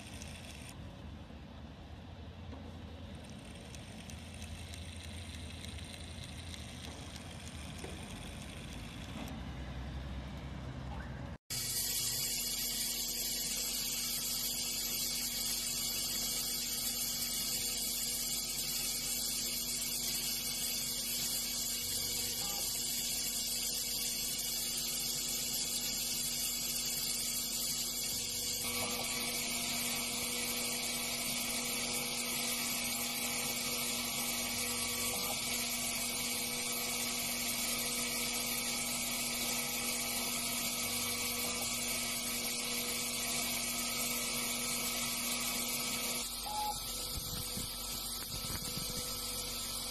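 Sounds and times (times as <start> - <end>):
spindle whining while drilling metal: 0.0 - 0.8, 11.5 - 49.9.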